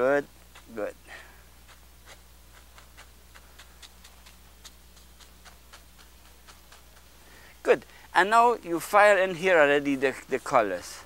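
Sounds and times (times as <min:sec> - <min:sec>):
brush dabbing on canvas: 0:00.0 - 0:10.5
steady low hum: 0:00.0 - 0:11.0.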